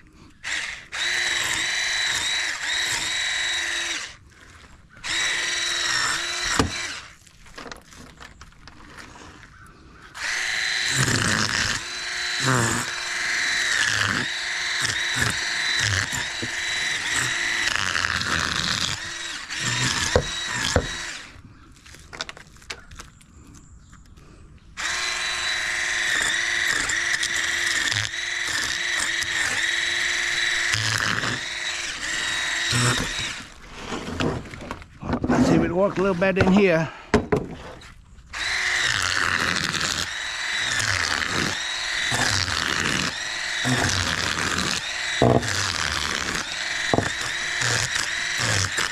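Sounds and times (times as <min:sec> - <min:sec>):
electric fish scaler motor whine: 0:10.2 - 0:21.3, 0:38.3 - 0:48.9.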